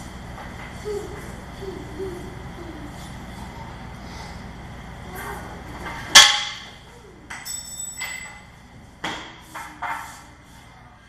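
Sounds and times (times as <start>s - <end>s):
metallic clank ringing: 7.4s - 8.5s.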